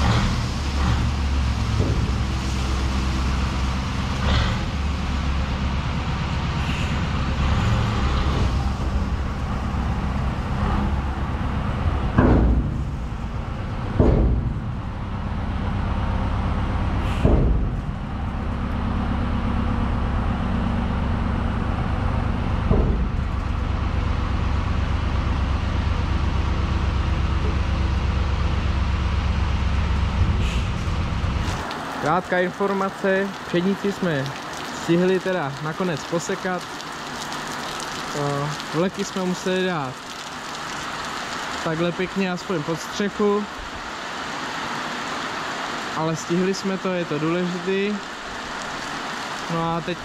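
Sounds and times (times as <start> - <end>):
tractor diesel engine running: 0.0 - 34.2
sharp knocks: 1.7 - 2.3, 12.1 - 12.9, 13.9 - 14.8, 17.2 - 17.8, 22.6 - 23.3.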